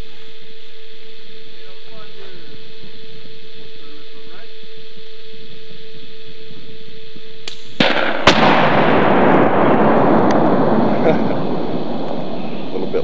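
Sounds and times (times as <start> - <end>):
explosion cracks: 7.5 - 13.0.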